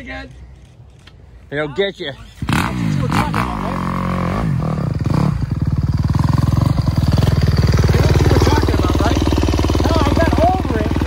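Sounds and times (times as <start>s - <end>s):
motorcycle engine revving: 2.2s - 11.0s.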